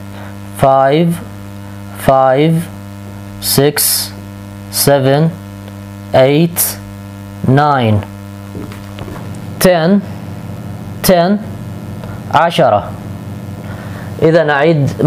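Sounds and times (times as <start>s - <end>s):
electrical mains hum: 0.0s - 15.0s
man speaking: 14.2s - 15.0s.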